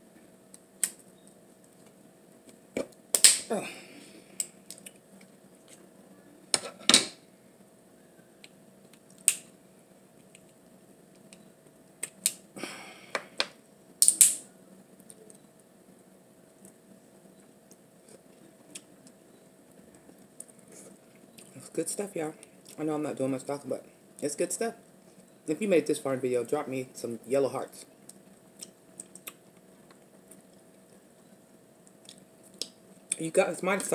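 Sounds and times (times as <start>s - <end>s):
mouth clicks and smacks eating: 28.0s - 31.0s, 31.8s - 33.2s.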